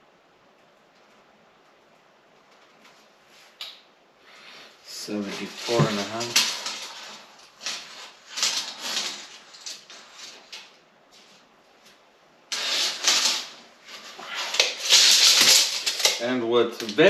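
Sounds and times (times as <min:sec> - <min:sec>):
scraping and rustling handling noise: 0:04.3 - 0:17.0.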